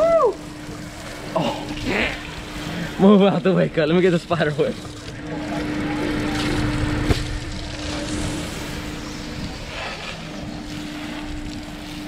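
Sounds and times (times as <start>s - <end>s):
constant low hum: 0.0s - 12.0s
hose spraying water: 0.0s - 12.0s.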